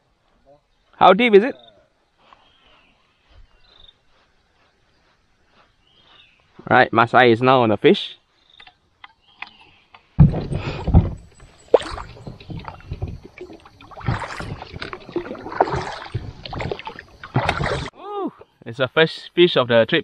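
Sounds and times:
paddle strokes splashing: 10.2s - 18.0s.

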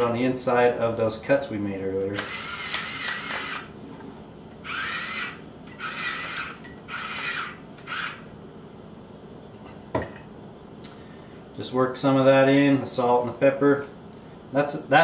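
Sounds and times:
pepper grinder grinding: 2.1s - 3.7s, 4.6s - 8.2s.

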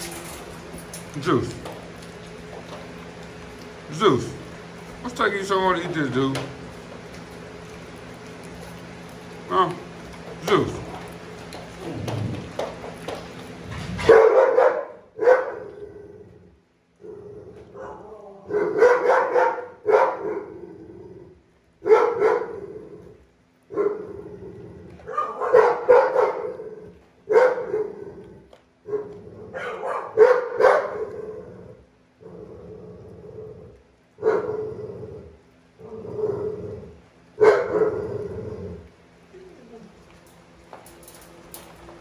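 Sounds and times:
dog barking: 14.0s - 15.7s, 17.8s - 20.5s, 21.8s - 22.6s, 25.1s - 26.6s, 27.3s - 27.9s, 28.9s - 31.2s, 34.2s - 34.5s, 37.4s - 38.0s.

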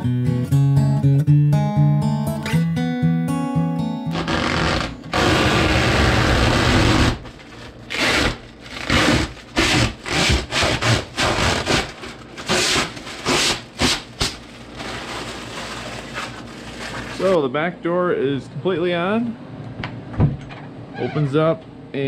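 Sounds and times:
plastic film ripping and crinkling: 4.1s - 17.4s.

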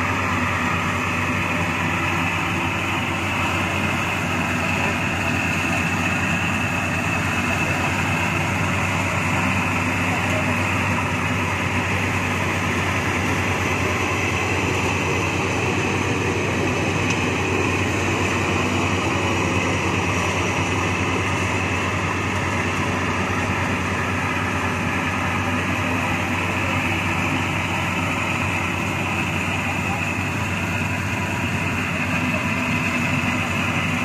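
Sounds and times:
combine harvester droning: 0.0s - 34.0s.

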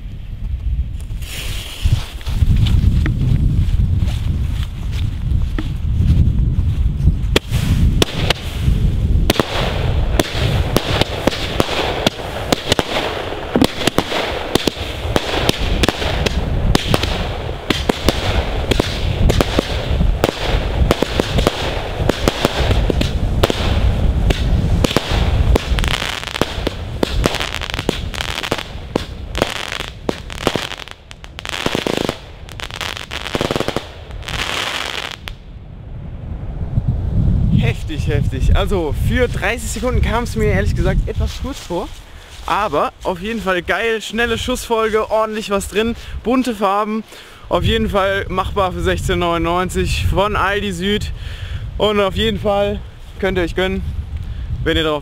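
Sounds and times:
firework hiss: 1.2s - 2.2s, 7.4s - 35.4s
firework shots: 7.3s - 35.4s.

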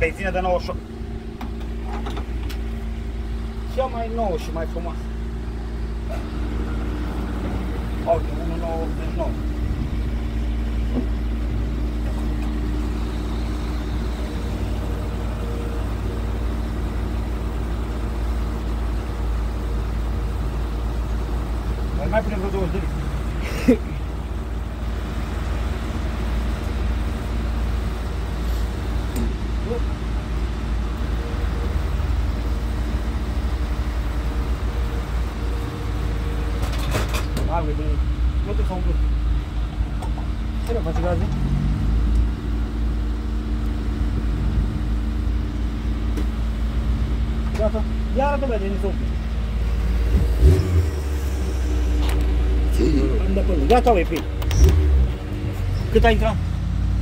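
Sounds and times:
fuel pump humming: 0.0s - 41.2s.

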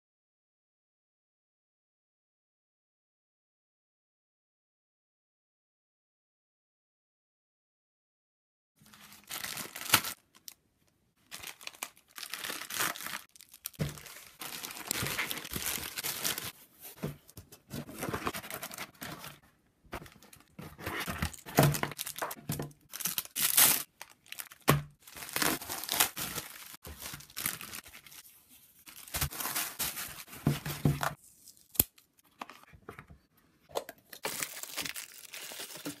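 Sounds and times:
plastic bags crinkling and ripping: 8.8s - 10.6s, 11.2s - 16.6s, 17.8s - 19.4s, 20.0s - 28.2s, 28.8s - 32.4s, 33.8s - 36.0s.

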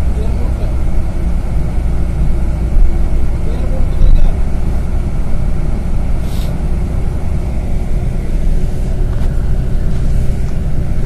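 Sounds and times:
engine rumble inside vehicle: 0.0s - 11.0s
brief hiss: 6.2s - 6.6s.

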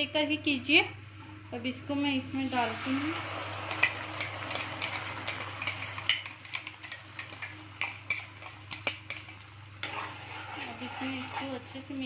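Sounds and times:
knife scraping metal bowl: 3.7s - 11.9s.

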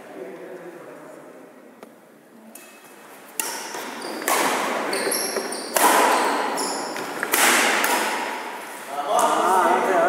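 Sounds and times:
shoes squeaking on floor: 2.8s - 7.4s
racket striking shuttlecock: 3.4s - 8.6s.

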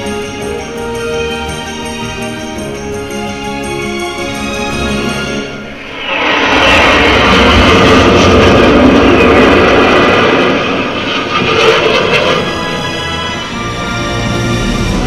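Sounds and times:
film soundtrack music: 0.0s - 15.0s
rushing vehicle sound effect: 5.6s - 15.0s.

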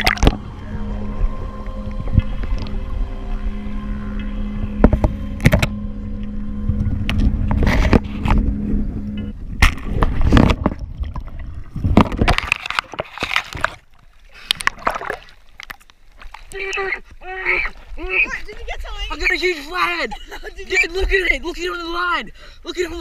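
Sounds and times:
muffled underwater noise: 0.0s - 10.5s
steady low hum: 0.0s - 21.5s.

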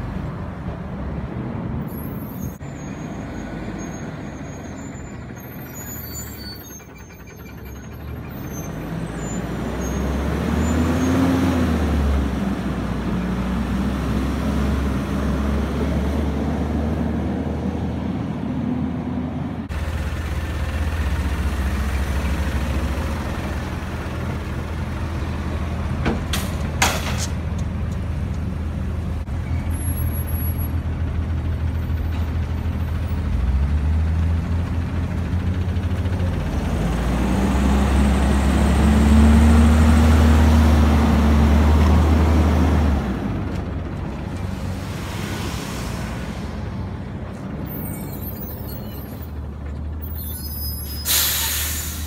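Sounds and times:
garbage truck diesel engine: 0.0s - 52.0s
air brake hisses: 50.7s - 52.0s.

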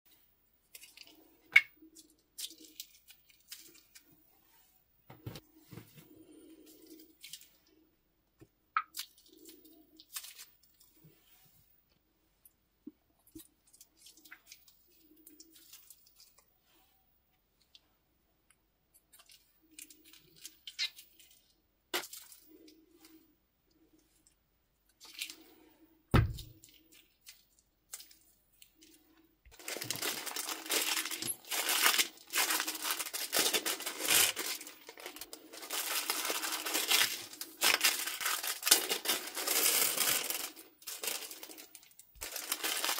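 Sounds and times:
glue squishing from plastic bags: 8.5s - 11.0s, 13.2s - 16.6s, 18.9s - 23.2s, 26.2s - 42.9s
thump: 26.1s - 26.5s
plastic bag crinkling: 26.3s - 42.9s.

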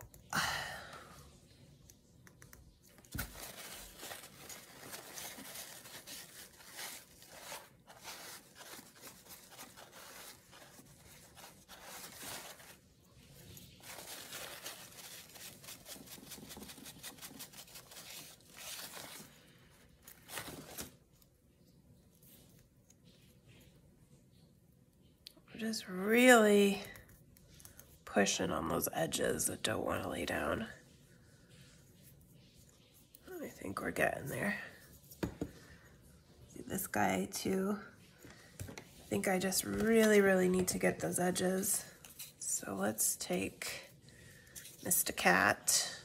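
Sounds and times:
paper towel crinkling: 3.0s - 21.2s.

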